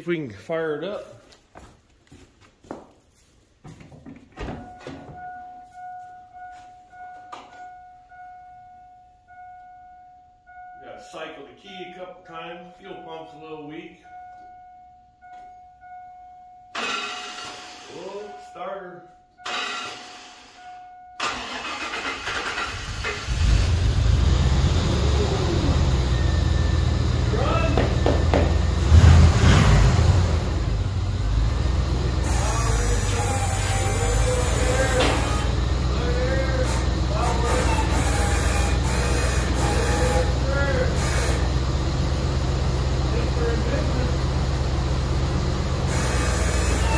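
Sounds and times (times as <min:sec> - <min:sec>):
footsteps: 0:00.9 - 0:07.7
high warning tone: 0:04.6 - 0:11.3, 0:25.1 - 0:28.5, 0:32.0 - 0:45.0
fuel pump priming: 0:21.2 - 0:23.6
truck engine rumbling: 0:21.2 - 0:46.9.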